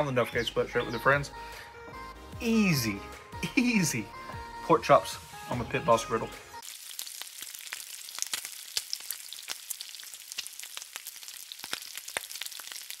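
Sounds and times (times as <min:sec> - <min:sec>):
bacon sizzling with pops: 0:06.6 - 0:13.0.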